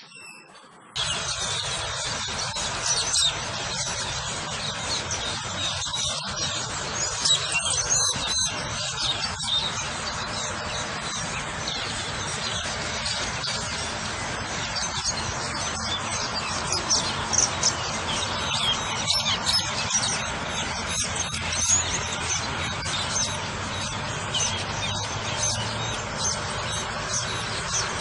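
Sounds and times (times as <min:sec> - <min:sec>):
starling chirping: 0:00.0 - 0:28.0
steady hiss: 0:00.7 - 0:28.0.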